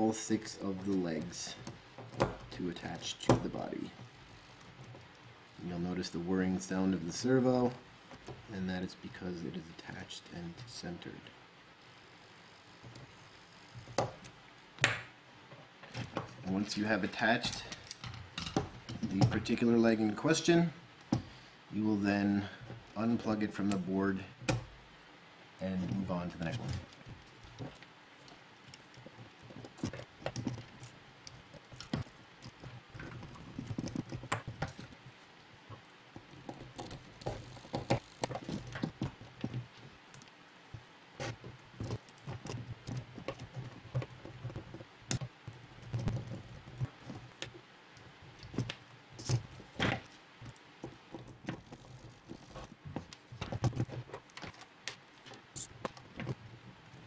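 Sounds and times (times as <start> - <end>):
plastic parts clicking and knocking: 1.6 - 2.5, 17.5 - 19.5, 28.6 - 35.0, 35.6 - 47.6, 48.3 - 56.4.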